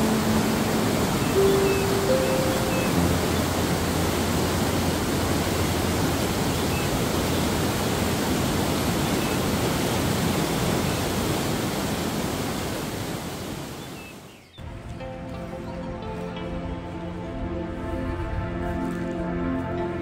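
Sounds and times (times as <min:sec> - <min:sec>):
falling water roaring: 0:00.0 - 0:14.3.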